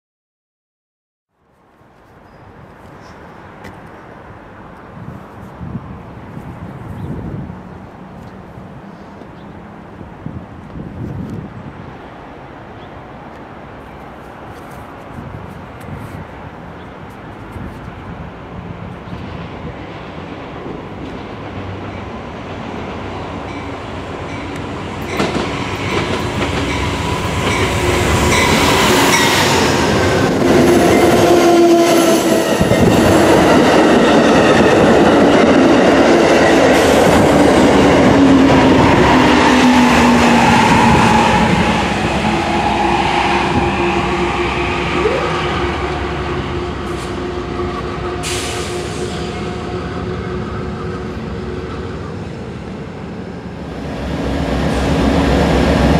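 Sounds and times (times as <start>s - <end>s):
diesel train passing: 2.5s - 55.9s
steel wheels on rails: 23.4s - 52.5s.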